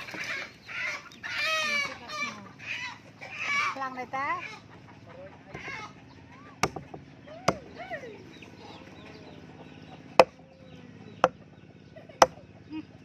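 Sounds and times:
chickens clucking: 0.0 - 13.0
knife chopping meat and bone: 6.6 - 7.6, 10.2 - 10.4.

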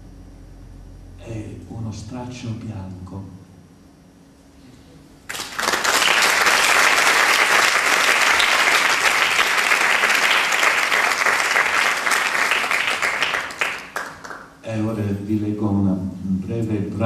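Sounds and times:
audience applauding: 5.3 - 14.5.

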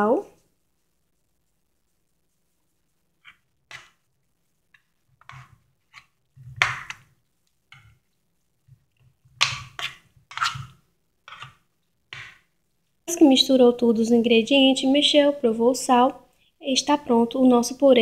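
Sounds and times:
spoon scraping mash in a pan: 2.2 - 13.5.

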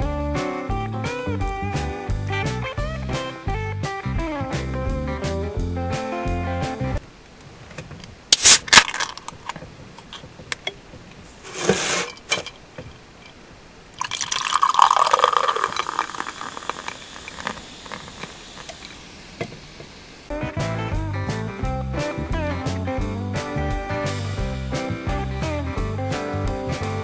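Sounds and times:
beer foam fizzing: 8.3 - 9.2, 13.9 - 20.1
short hiss: 8.3 - 9.2, 11.3 - 12.2
beer can cracking open: 8.3 - 10.6, 14.0 - 19.0
beer pouring into a glass: 14.0 - 18.8.

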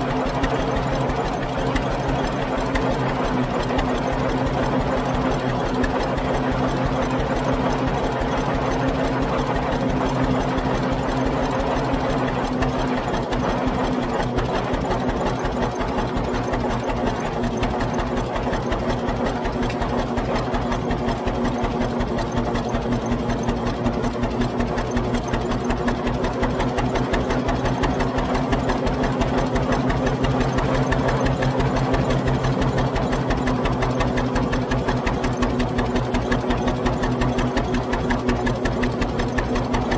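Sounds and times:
fast mechanical clatter: 0.0 - 39.9
tractor engine running: 0.0 - 39.9.

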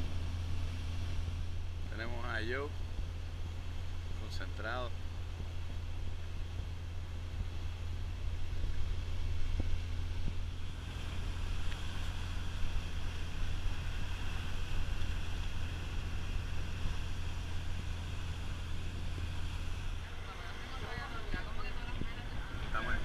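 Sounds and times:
boat engines droning: 0.0 - 23.0
water rushing along hull: 0.0 - 23.0
wind on microphone: 5.0 - 23.0.

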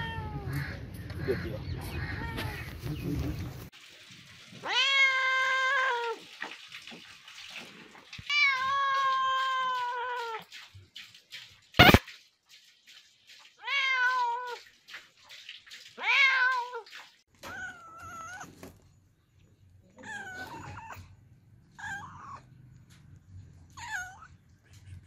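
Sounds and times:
cats meowing: 0.0 - 0.8, 1.8 - 2.8, 4.6 - 6.2, 8.2 - 10.4, 13.6 - 14.6, 16.0 - 18.5, 20.0 - 22.5, 23.8 - 24.4.

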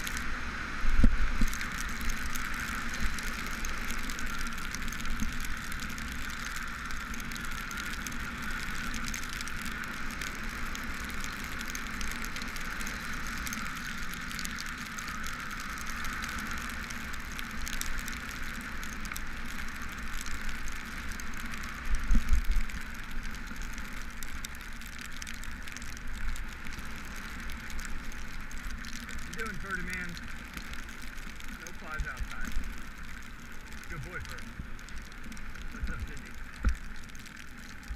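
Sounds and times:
bike rolling on wet pavement: 0.0 - 37.9
raindrop ticks: 0.0 - 37.9.

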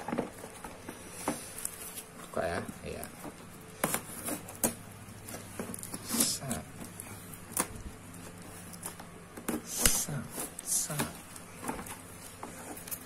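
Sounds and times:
plastic wrap crinkling: 0.0 - 9.5
packing tape tearing: 3.8 - 13.0.

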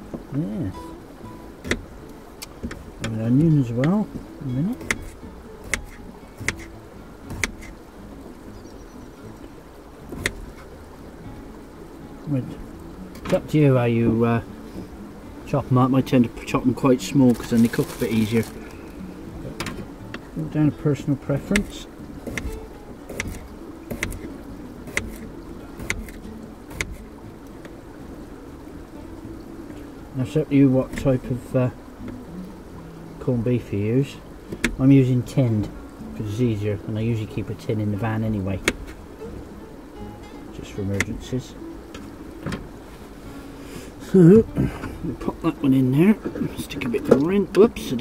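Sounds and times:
knife chopping on wooden board: 5.7 - 6.7.

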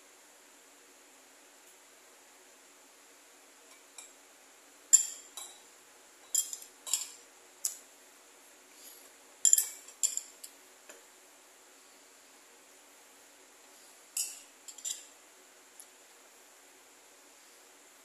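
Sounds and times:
metal spoon clinking against bowl: 4.9 - 5.6, 6.2 - 7.8, 9.4 - 10.3, 14.2 - 15.1.

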